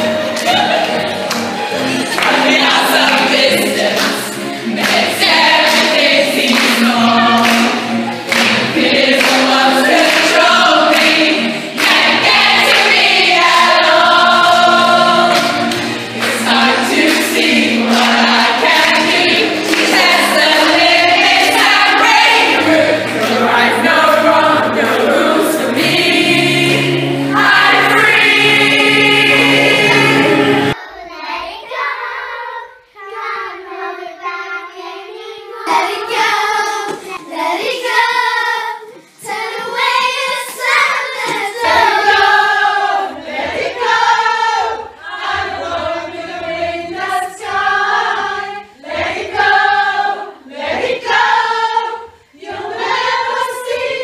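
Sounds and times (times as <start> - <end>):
group of girls singing: 1.8 - 31.0, 35.6 - 54.0
child singing: 29.3 - 42.5.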